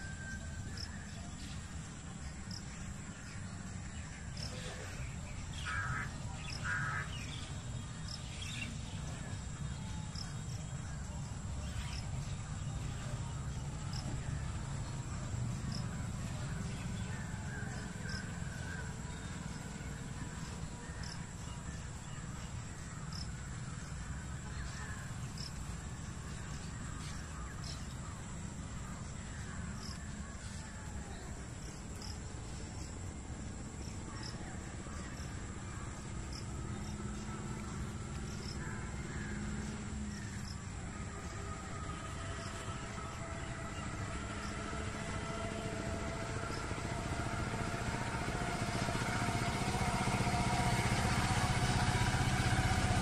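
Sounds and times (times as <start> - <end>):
high insect drone: 3.9 - 53.0
birds calling: 4.4 - 7.5.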